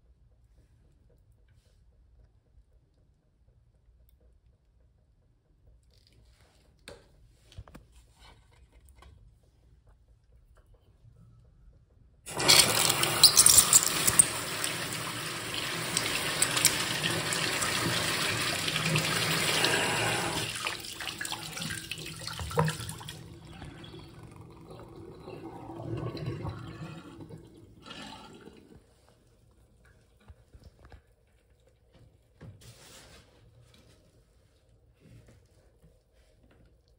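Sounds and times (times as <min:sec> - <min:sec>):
toilet flushing: 0:12.3 - 0:29.4
water trickling and gurgling: 0:12.6 - 0:30.0.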